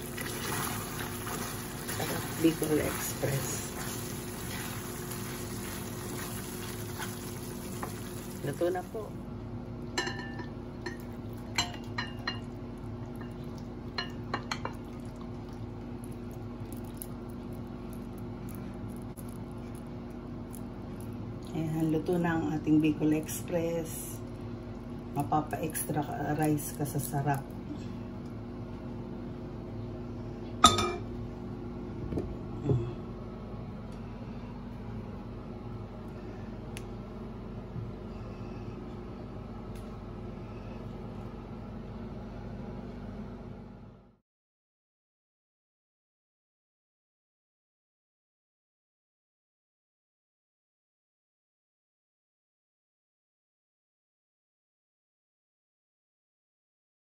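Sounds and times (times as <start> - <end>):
steady low hum: 0.0 - 44.2
dishware knocks: 30.6 - 31.0
pan clinking against ceramic bowl: 30.6 - 31.1.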